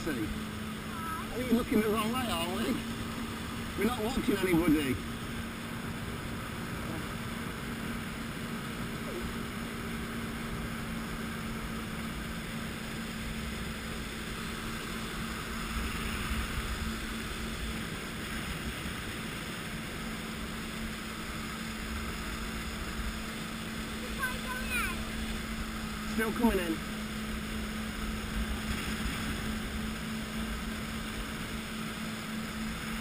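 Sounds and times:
jet ski engine droning: 0:00.0 - 0:33.0
water churning: 0:00.0 - 0:33.0.

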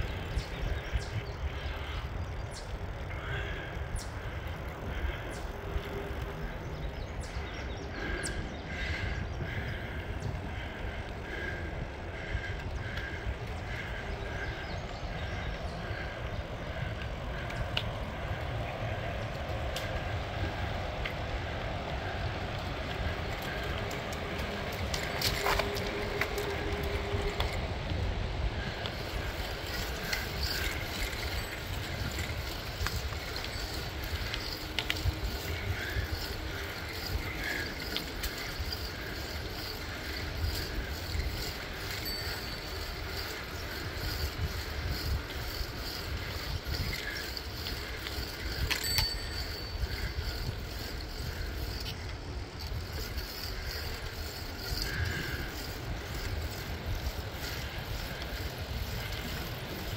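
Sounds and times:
bicycle tyres on asphalt: 0:00.0 - 0:59.9
wind on microphone: 0:16.4 - 0:59.9.

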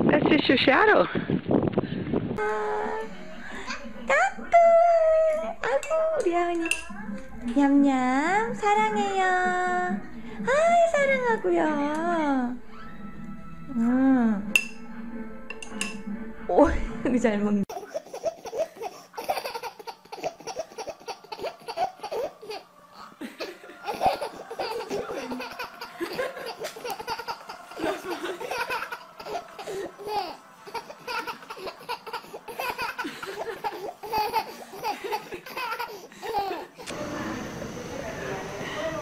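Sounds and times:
baby laughing: 0:17.7 - 0:36.9.

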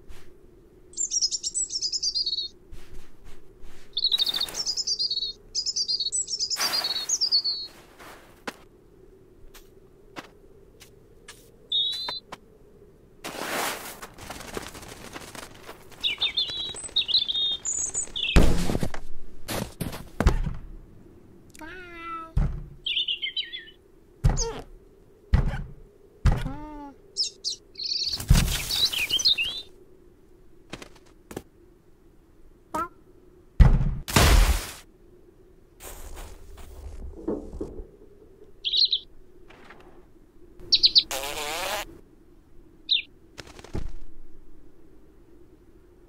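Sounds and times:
small bird chirping: 0:00.9 - 0:02.6, 0:03.9 - 0:07.8, 0:11.7 - 0:12.3, 0:15.9 - 0:18.4, 0:21.6 - 0:23.8, 0:26.5 - 0:29.7, 0:38.6 - 0:39.1, 0:40.6 - 0:41.8, 0:42.9 - 0:43.1
falling cat cries: 0:21.6 - 0:22.4.

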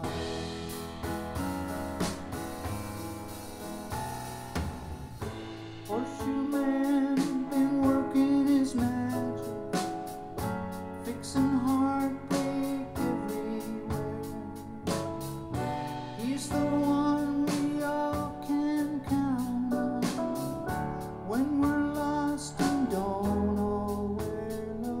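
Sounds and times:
guitar: 0:00.0 - 0:25.0
man singing: 0:05.8 - 0:09.9, 0:10.9 - 0:15.3, 0:16.2 - 0:25.0.

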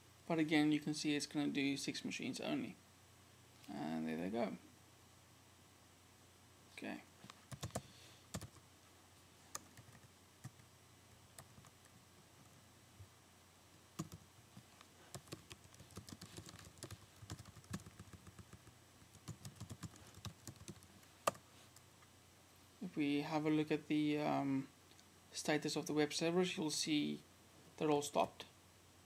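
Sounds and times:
faint keyboard typing: 0:07.2 - 0:08.6, 0:09.5 - 0:12.6, 0:14.0 - 0:21.9.

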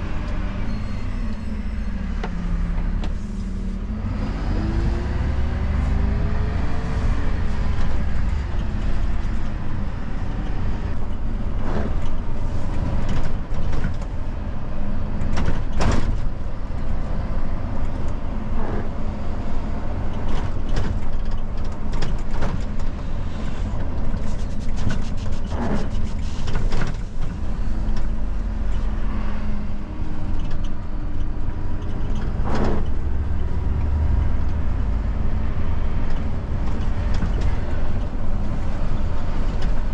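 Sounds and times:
road noise: 0:00.0 - 0:39.9
truck diesel engine: 0:00.0 - 0:39.9
knocks and rattles in cab: 0:15.2 - 0:16.4, 0:20.2 - 0:23.0.

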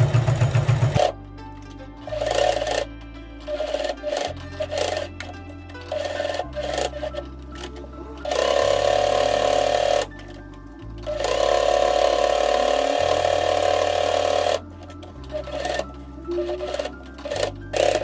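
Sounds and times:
background music: 0:00.0 - 0:18.0
sewing machine stitching: 0:02.0 - 0:05.1, 0:05.8 - 0:10.1, 0:11.0 - 0:14.6, 0:15.2 - 0:18.0.

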